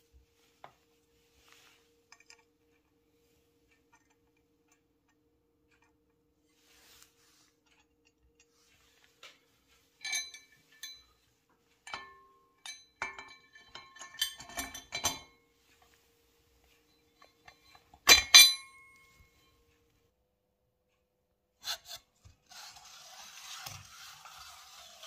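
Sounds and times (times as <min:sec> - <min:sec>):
metal clinks on steel table: 0:10.0 - 0:11.0, 0:11.9 - 0:15.3, 0:17.2 - 0:19.2.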